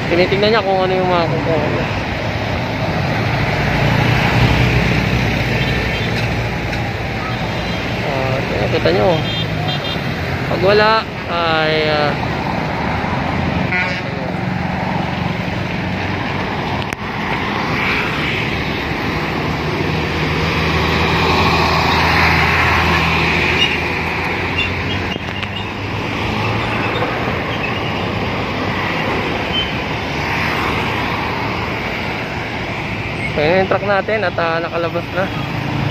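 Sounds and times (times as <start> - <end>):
traffic noise: 0.0 - 35.9.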